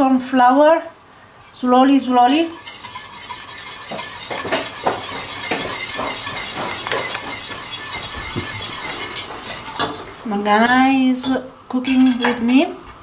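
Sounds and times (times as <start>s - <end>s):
whisk clicking against metal pot: 2.3s - 12.4s.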